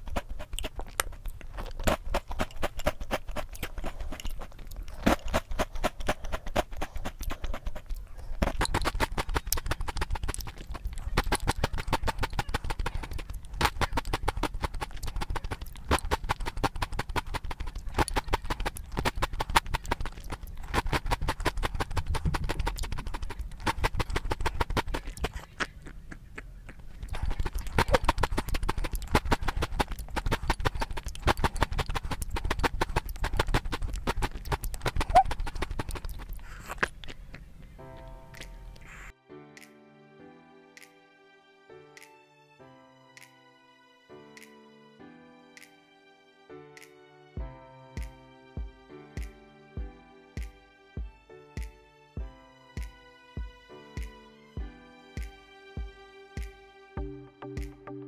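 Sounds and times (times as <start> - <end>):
chewing crunchy cereal in milk: 0.0 - 39.1.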